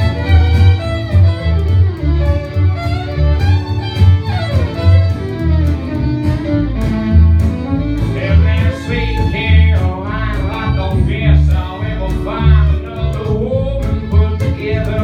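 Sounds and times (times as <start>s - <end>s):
acoustic guitar: 0.0s - 15.0s
fiddle melody: 0.0s - 15.0s
upright bass plucking: 0.0s - 15.0s
person singing: 8.0s - 15.0s.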